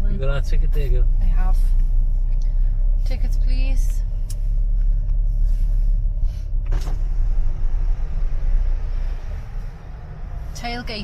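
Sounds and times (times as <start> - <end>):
car engine and tyres rumbling: 0.0 - 11.0
short thump: 6.6 - 7.4.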